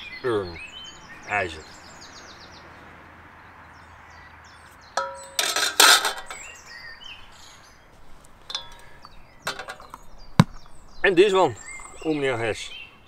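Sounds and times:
birds chirping faintly: 0.0 - 13.0
metal pans scraping clatter: 5.0 - 6.5, 8.4 - 10.0
metal pan clinking: 5.0 - 6.6, 8.5 - 10.0.

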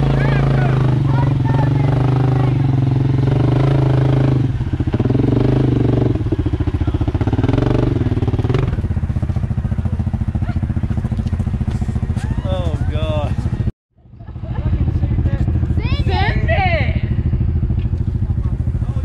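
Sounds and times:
quad engine revving: 0.0 - 13.7.

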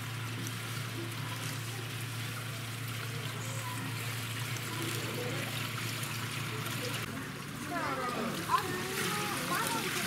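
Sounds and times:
water trickling in a rocky stream: 0.0 - 10.0.

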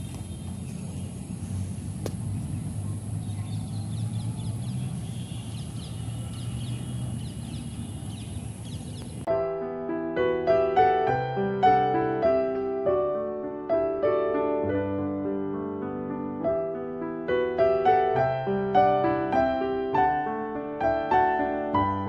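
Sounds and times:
bird chirping: 0.0 - 9.3
low steady rumble: 0.0 - 9.3
piano music: 9.2 - 22.0.

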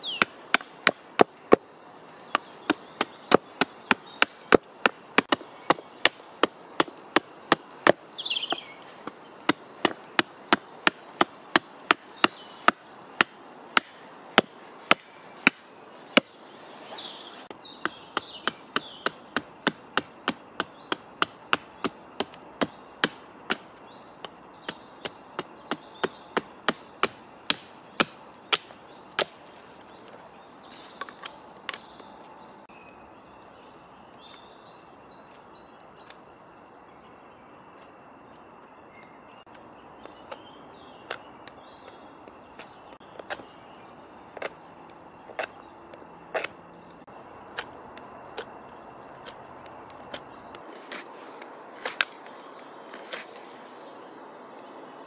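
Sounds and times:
hatchet chopping wood: 0.1 - 1.7, 2.3 - 16.4, 17.8 - 29.6.

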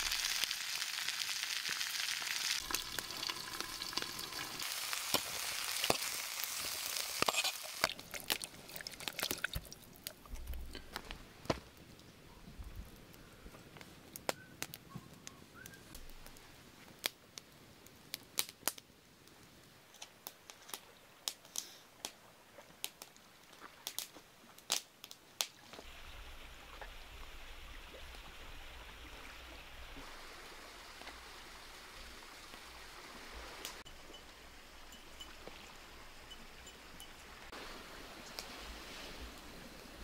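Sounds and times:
campfire crackling and popping: 0.0 - 25.9.

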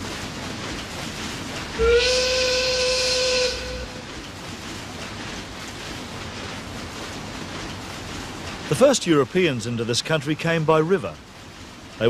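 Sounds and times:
steam whistle blast: 1.8 - 4.0.

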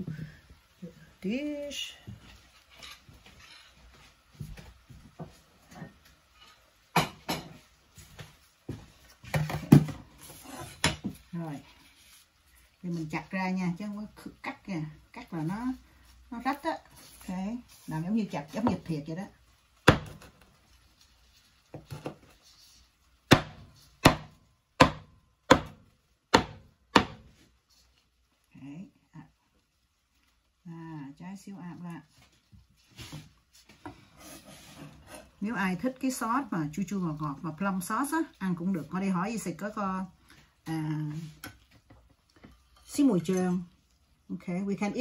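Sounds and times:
knife chopping: 19.8 - 20.4, 23.3 - 27.3.

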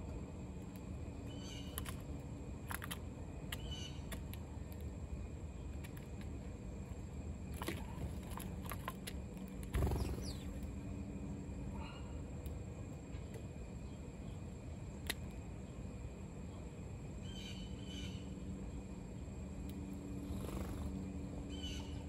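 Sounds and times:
low background rumble: 0.0 - 22.0
sparrow chirps: 1.2 - 1.9, 3.5 - 4.1, 9.8 - 10.7, 17.2 - 18.4, 20.4 - 22.0.

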